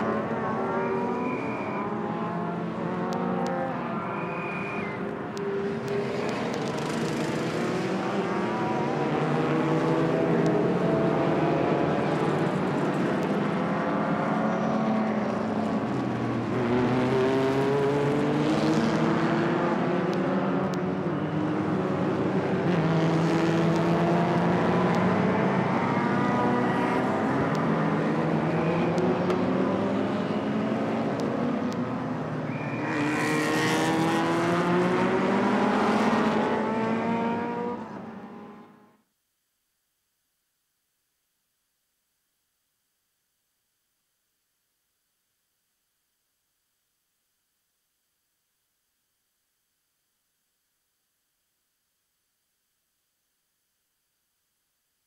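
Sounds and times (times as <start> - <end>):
race car engines accelerating: 0.0 - 39.0.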